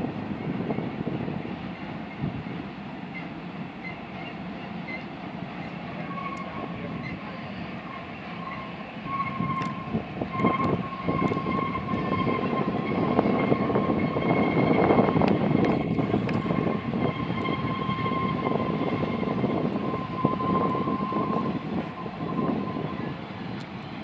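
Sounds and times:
freight train cars rumbling: 0:00.0 - 0:24.0
high-pitched wheel squeal: 0:01.7 - 0:23.3.

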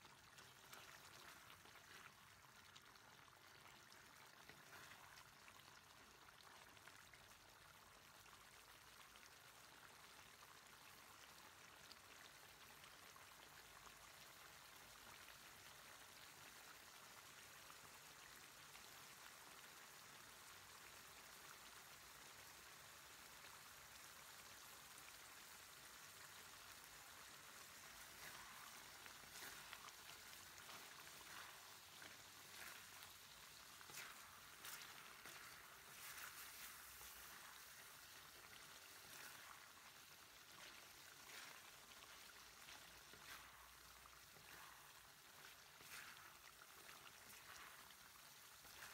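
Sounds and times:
food sizzling in a wok: 0:25.5 - 0:39.6.

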